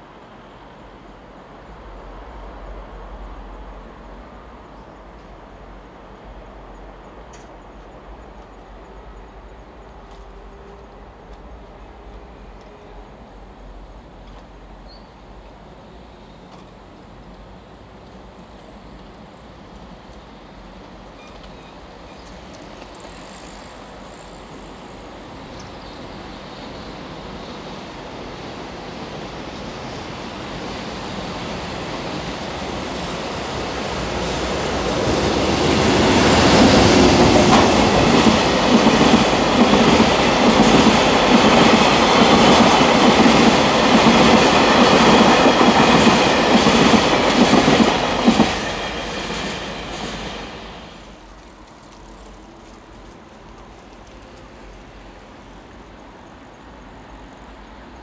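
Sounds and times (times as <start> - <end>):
train rumble: 0.0 - 58.0
rhythmic train wheel clatter: 29.2 - 55.1.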